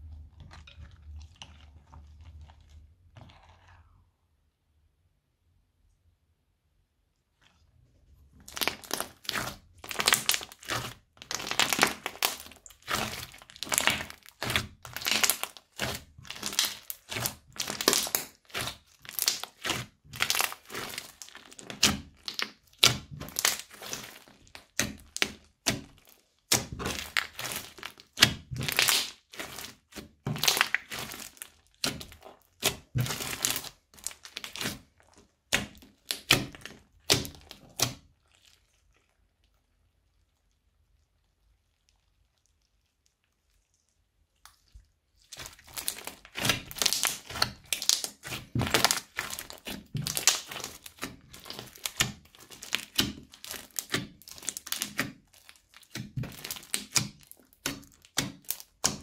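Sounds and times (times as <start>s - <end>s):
crunchy slime crunching: 0.0s - 4.0s, 8.3s - 59.0s.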